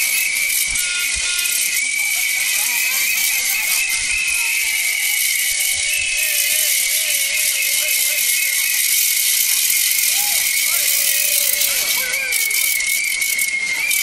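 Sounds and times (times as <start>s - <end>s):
protest crowd din: 0.0s - 13.9s
wavering falling tone: 0.0s - 14.0s
hand rattles clattering: 5.1s - 14.0s.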